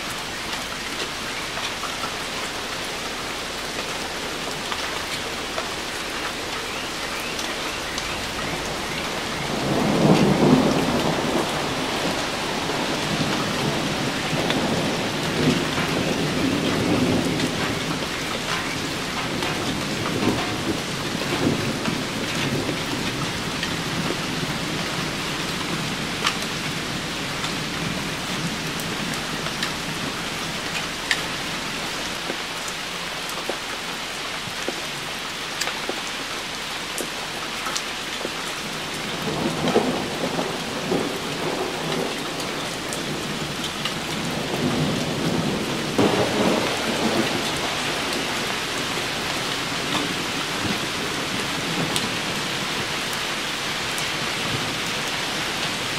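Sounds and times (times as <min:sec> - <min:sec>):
steady rain: 0:00.0 - 0:55.9
thunder rumbling: 0:03.9 - 0:32.5, 0:38.6 - 0:53.0
sharp raindrop ticks: 0:16.6 - 0:22.6, 0:30.6 - 0:31.3.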